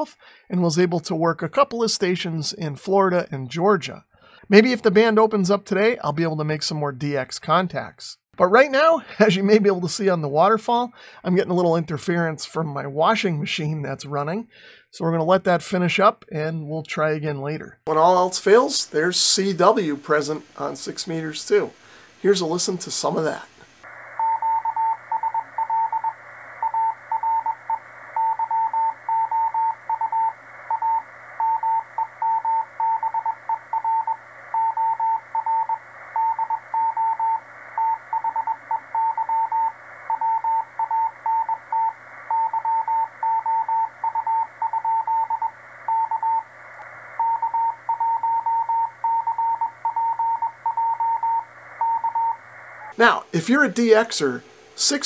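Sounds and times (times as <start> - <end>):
radio band hiss: 17.9 - 55.0
morse code beep tone: 24.2 - 46.5, 47.2 - 52.4.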